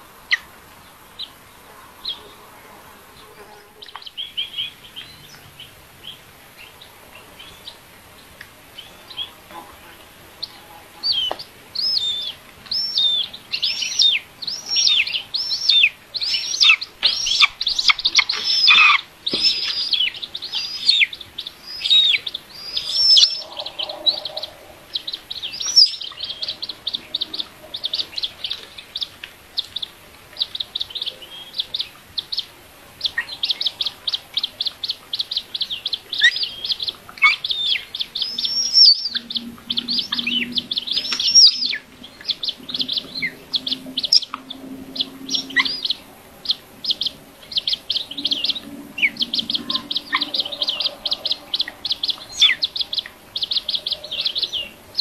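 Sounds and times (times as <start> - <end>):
young bird of prey begging calls: 11.0 - 21.1, 21.7 - 28.0, 36.1 - 44.3.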